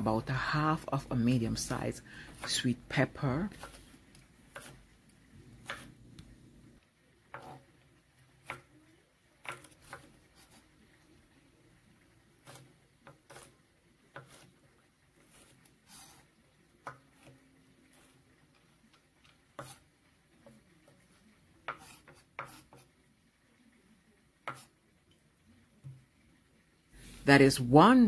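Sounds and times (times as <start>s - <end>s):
knife chopping on wooden board: 4.5s - 4.8s, 5.6s - 5.9s, 14.1s - 14.5s, 21.7s - 22.8s, 24.5s - 24.7s.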